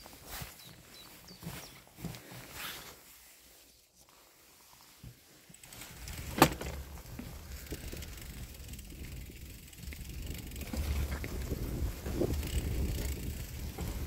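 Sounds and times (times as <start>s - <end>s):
bicycle rattles and clicks: 5.5s - 14.0s
wind rumble on microphone: 7.1s - 14.0s.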